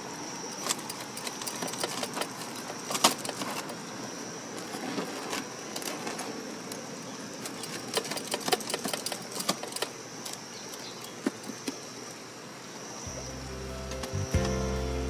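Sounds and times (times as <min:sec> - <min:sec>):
music: 0:13.1 - 0:15.0.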